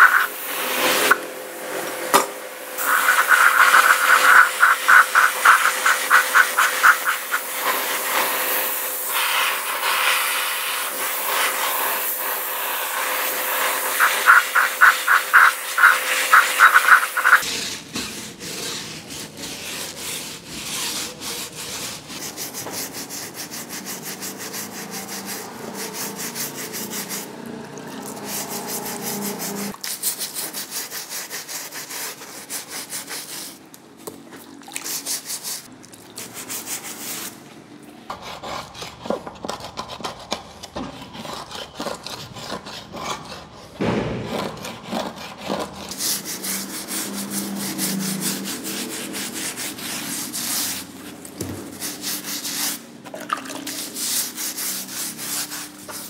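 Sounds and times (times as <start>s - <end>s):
brush scrubbing wet rubber: 0.0s - 1.2s, 2.8s - 33.8s, 34.5s - 37.4s, 44.5s - 56.0s.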